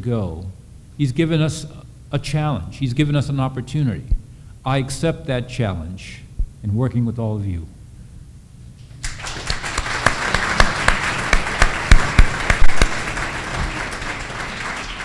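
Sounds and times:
sharp single claps nearby: 9.0s - 14.8s
audience applause: 9.0s - 15.0s.

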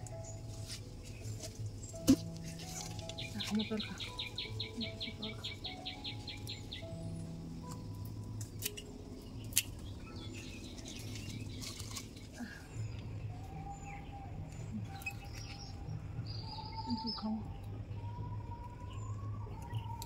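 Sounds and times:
birds chirping: 0.0s - 20.0s
pruning shears snipping: 8.4s - 12.4s.

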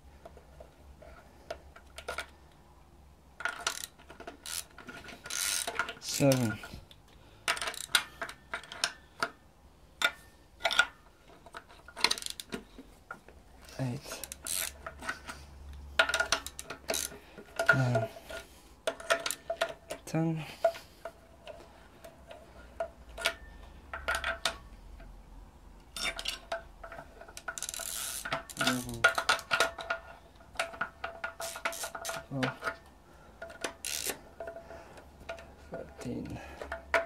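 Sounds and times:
ratchet clicking: 3.5s - 6.5s, 7.5s - 8.9s, 12.0s - 12.5s, 14.1s - 14.9s, 16.1s - 17.1s, 27.4s - 29.7s, 31.3s - 32.3s, 33.8s - 34.2s.

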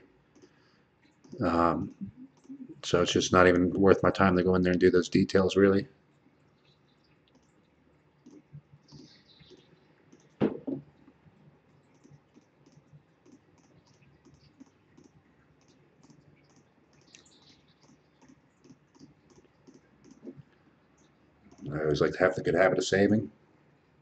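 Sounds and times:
computer mouse clicking: 0.3s - 1.4s, 2.3s - 2.6s, 7.3s - 7.6s, 8.2s - 10.4s, 11.8s - 21.7s
sharp thump: 10.4s - 10.8s.

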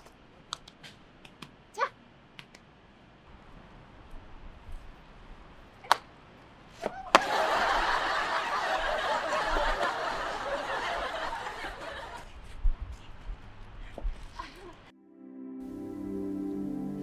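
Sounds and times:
audience laughter: 7.2s - 12.2s.

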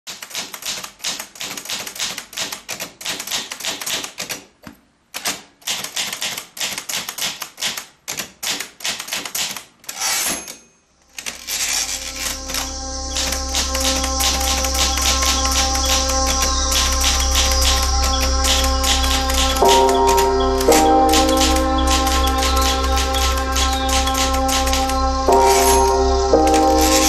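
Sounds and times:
typewriter keys clacking: 0.1s - 4.5s, 5.2s - 10.6s
electronic music with bass: 11.6s - 27.0s.

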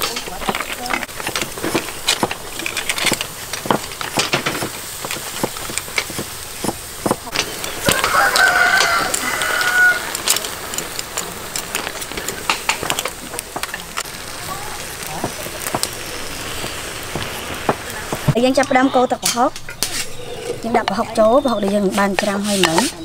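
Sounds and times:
snails sizzling on grill: 0.0s - 23.0s
rooster crowing: 7.7s - 10.3s.

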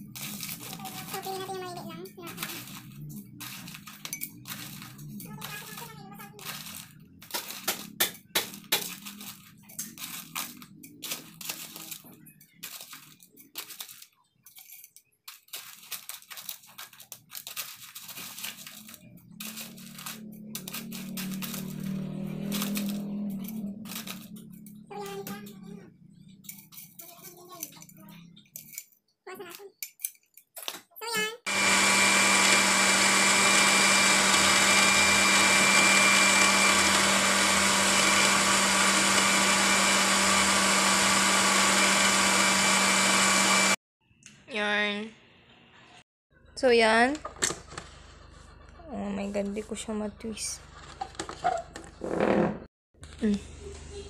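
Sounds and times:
ice cubes clattering into glass: 2.3s - 24.4s
blender running: 18.8s - 24.3s, 31.5s - 43.8s.

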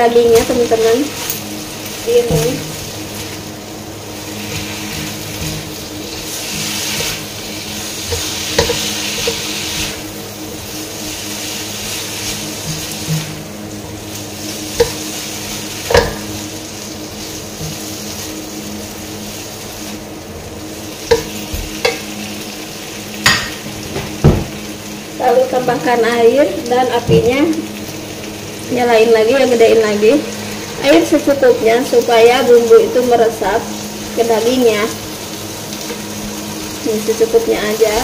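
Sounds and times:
meat sizzling in a wok: 0.0s - 38.0s
spatula knocking against pan: 8.1s - 9.5s, 14.8s - 15.1s, 15.8s - 16.3s, 21.1s - 22.1s.

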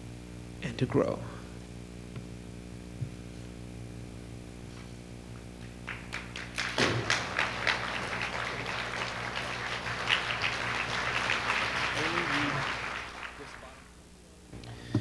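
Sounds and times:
low mains hum: 0.0s - 15.0s
audience applause: 5.8s - 14.0s.

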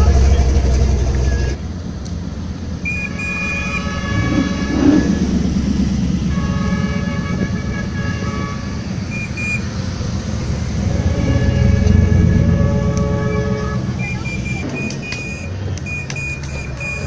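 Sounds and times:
car engines driving past: 0.0s - 17.0s
horn-like tone: 2.9s - 9.8s, 10.5s - 15.4s.

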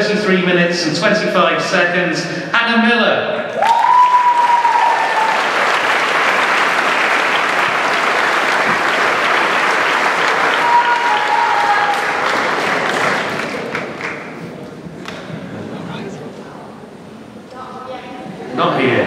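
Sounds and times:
audience applauding: 3.6s - 15.2s.

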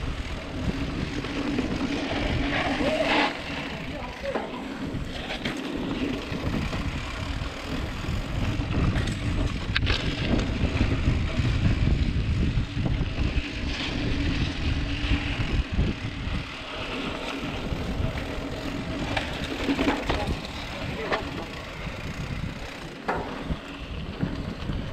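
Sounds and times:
bike rattling: 0.0s - 24.9s
knobby tyres rumbling on dirt: 0.0s - 24.9s
wind rushing over microphone: 0.0s - 24.9s.

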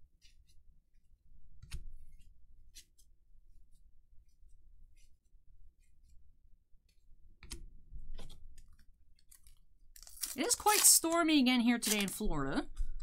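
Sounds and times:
cards clicking and rustling: 8.6s - 12.2s
card snap: 11.8s - 12.2s.

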